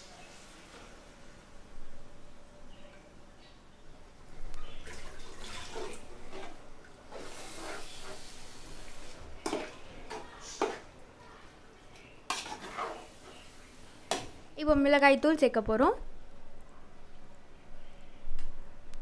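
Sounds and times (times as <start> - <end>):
wet sizzle and squelch: 4.5 - 11.1, 11.8 - 14.4
metal spoon scraping pot: 12.3 - 13.4.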